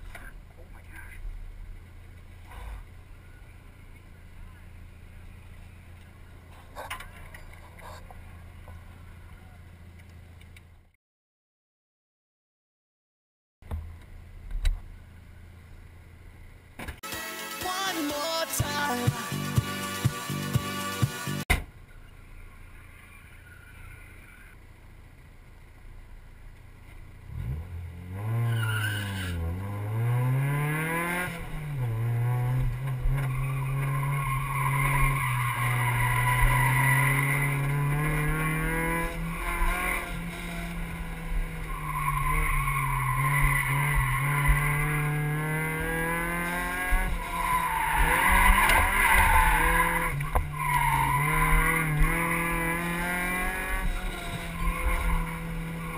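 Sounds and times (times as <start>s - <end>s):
car engine revving: 18.2s - 55.9s
tires squealing: 22.0s - 24.7s, 27.3s - 55.9s.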